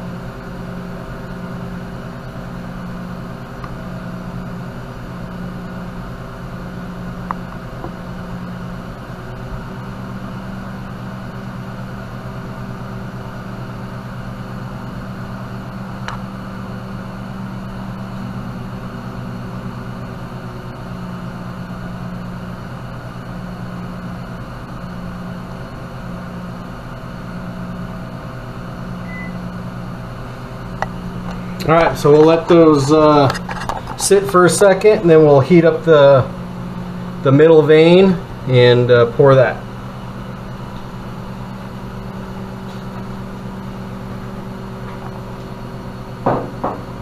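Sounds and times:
electric motor hum: 0:00.0 - 0:47.0.

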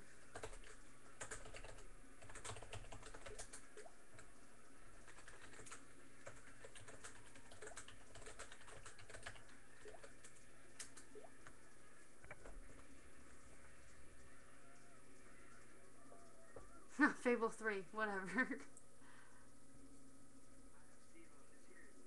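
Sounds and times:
typing on computer keyboard: 0:00.3 - 0:04.3, 0:05.0 - 0:11.3.

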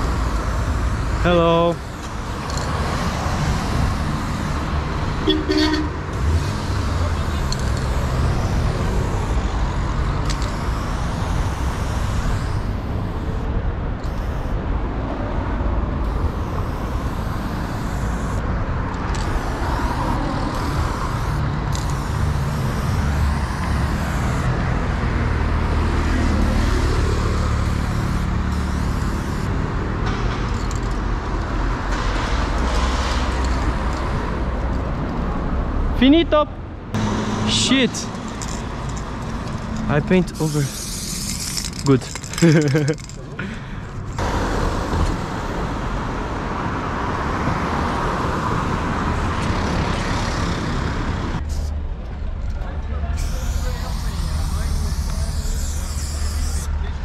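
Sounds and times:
spray paint can hissing: 0:00.0 - 0:14.6, 0:16.0 - 0:24.6, 0:26.4 - 0:29.5, 0:38.1 - 0:43.2, 0:51.4 - 0:51.8, 0:53.2 - 0:56.8
city traffic rumble: 0:00.0 - 0:57.0.

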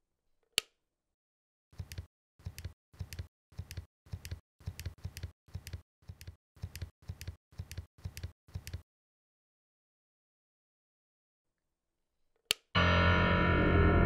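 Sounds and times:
low hum: 0:12.8 - 0:14.0.

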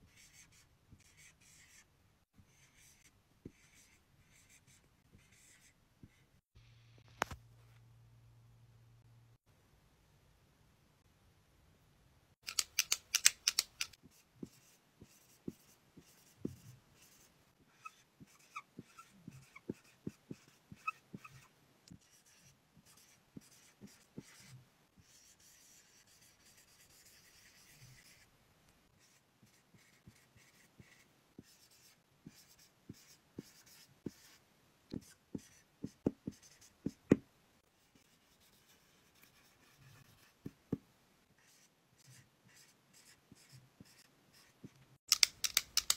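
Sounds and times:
sharp clicks: 0:12.4 - 0:14.0, 0:45.1 - 0:45.9
marker squeaking on whiteboard: 0:14.1 - 0:28.2
marker taps: 0:45.1 - 0:45.9.

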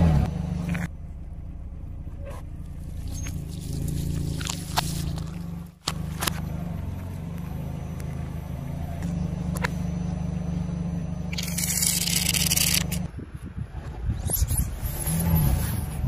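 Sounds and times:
car engine idling: 0:00.2 - 0:13.1.

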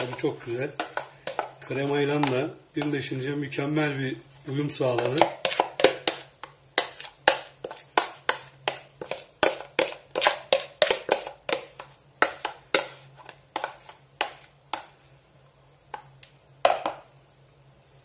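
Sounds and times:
metal spoon scraping plastic bowl: 0:00.0 - 0:03.1, 0:04.9 - 0:14.5.

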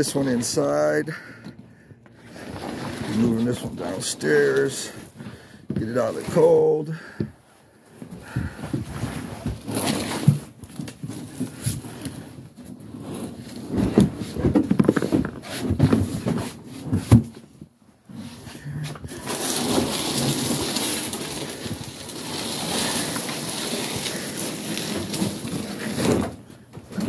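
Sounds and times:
container being handled: 0:19.0 - 0:27.0.

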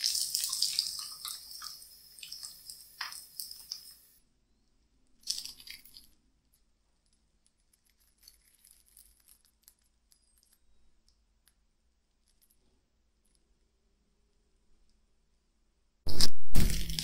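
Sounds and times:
faint small crackles: 0:05.0 - 0:13.5.

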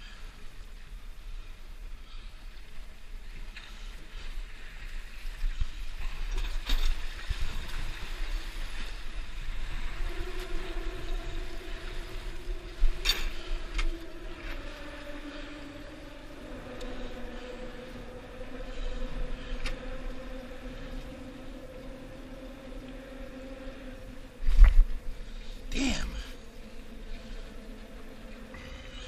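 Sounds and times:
wind rumble: 0:00.0 - 0:29.0
distant engine hum: 0:07.8 - 0:29.0.

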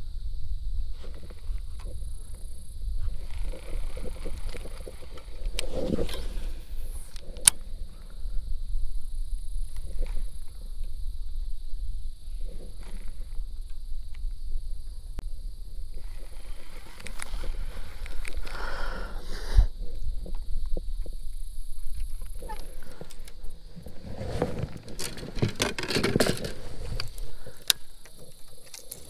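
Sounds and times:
wind rumble on microphone: 0:00.0 - 0:29.0
handling noise scrape: 0:03.0 - 0:07.5, 0:22.4 - 0:29.0.

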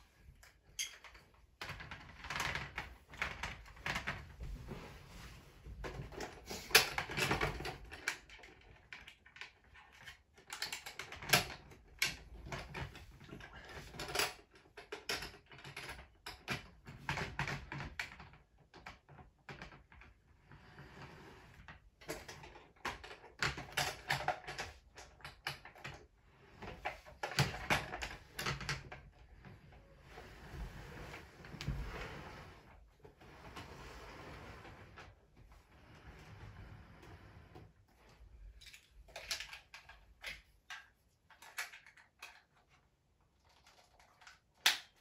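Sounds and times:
plastic toy clicks and clatters: 0:06.1 - 0:19.9, 0:22.0 - 0:26.1, 0:38.6 - 0:45.0.

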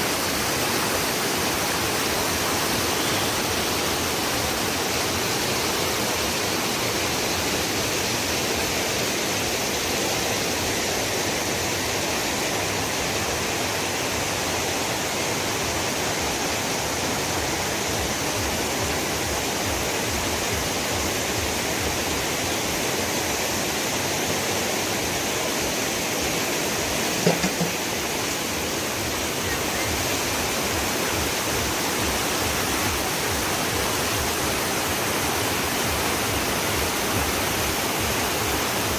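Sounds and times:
water rushing over rocks: 0:00.0 - 0:38.9
brief knock: 0:27.2 - 0:27.8.

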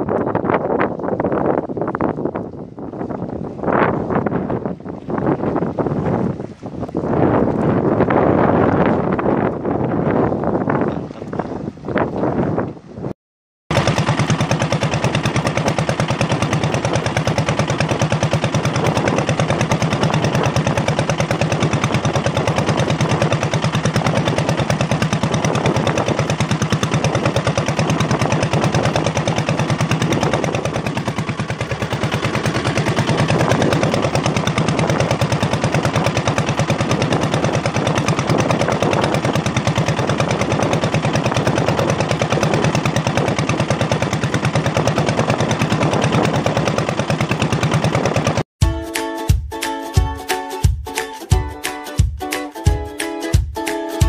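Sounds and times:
boat engine chugging: 0:13.7 - 0:48.9.

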